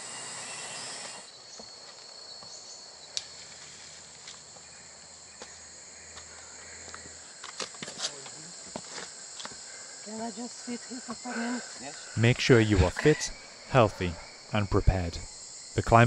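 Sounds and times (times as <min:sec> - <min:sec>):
insects droning: 0:00.0 - 0:16.0
footsteps on a trail: 0:03.3 - 0:09.7.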